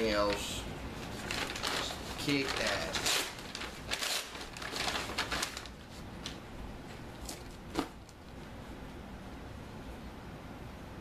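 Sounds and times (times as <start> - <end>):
packaging crinkling: 0.0 - 6.5, 7.2 - 8.2.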